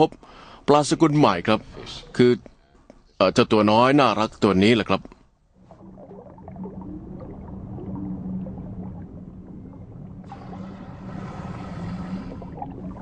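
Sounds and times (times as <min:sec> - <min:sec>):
underwater low drone: 0:05.6 - 0:13.0
hiss: 0:10.3 - 0:12.5.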